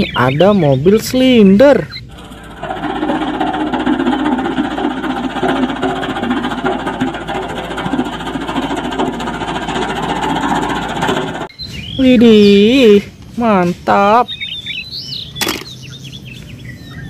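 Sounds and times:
road roller rolling over stones: 1.0s - 11.5s.

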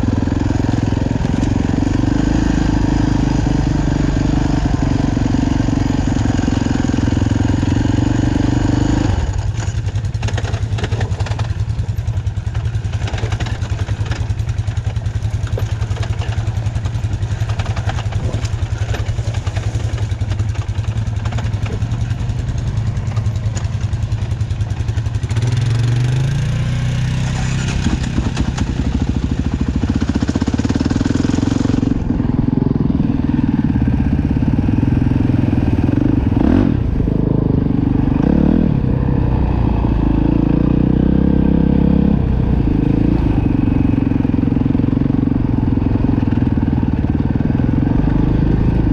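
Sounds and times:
dirt bike engine revving: 0.0s - 48.9s.

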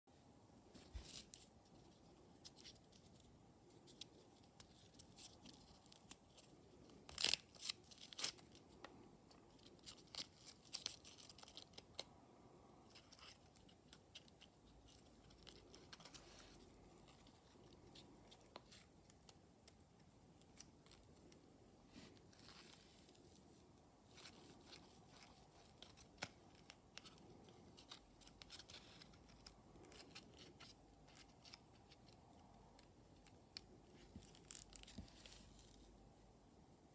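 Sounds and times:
paper crackling and rustling: 24.0s - 35.9s.

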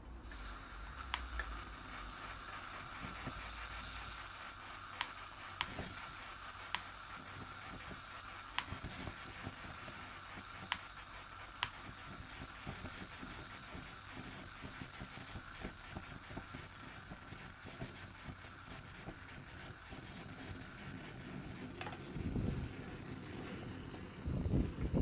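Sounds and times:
gas stove burner hissing: 0.0s - 25.0s
sharp clicks: 1.0s - 1.6s, 4.7s - 7.0s, 7.8s - 9.0s, 10.4s - 12.0s.

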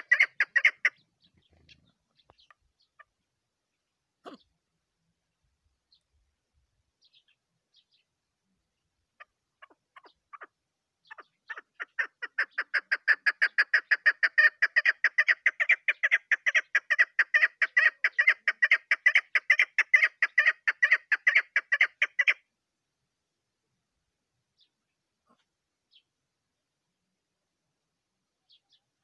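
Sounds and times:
partridge chuck calls: 0.0s - 3.3s, 4.2s - 4.6s, 9.1s - 22.5s, 24.6s - 26.1s.

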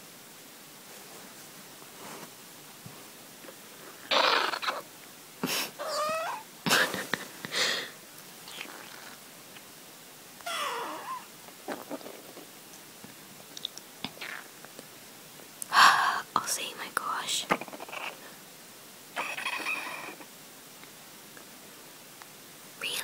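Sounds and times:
stomach squeals: 4.0s - 4.9s, 10.4s - 12.4s.

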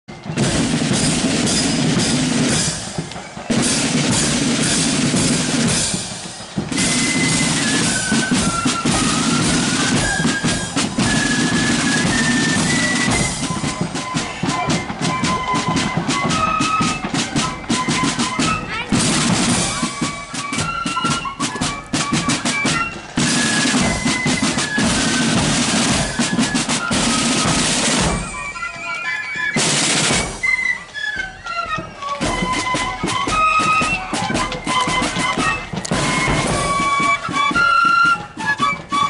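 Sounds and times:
flute melody: 0.1s - 39.0s
side drums and bass drum: 32.2s - 37.7s.

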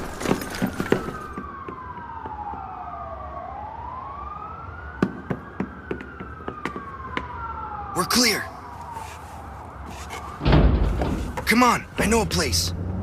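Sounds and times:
siren wailing: 0.1s - 13.0s.

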